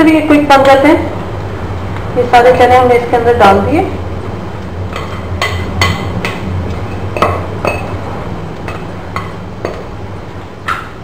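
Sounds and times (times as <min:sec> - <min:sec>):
spoon knocking metal pan: 0:04.9 - 0:08.0.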